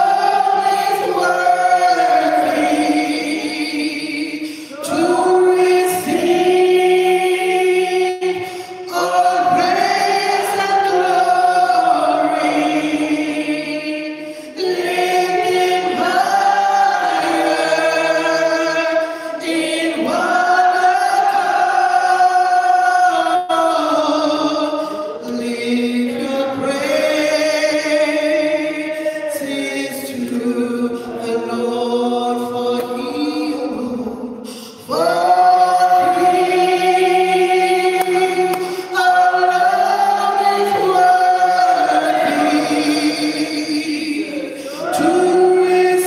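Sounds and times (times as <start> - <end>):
person singing gospel into microphone: 0.0 - 46.0.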